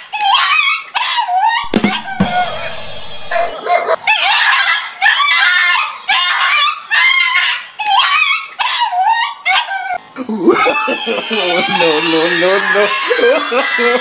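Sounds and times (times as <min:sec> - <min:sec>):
small dog barking and yelping: 0:00.1 - 0:10.0
brief rushing noise: 0:01.6 - 0:04.0.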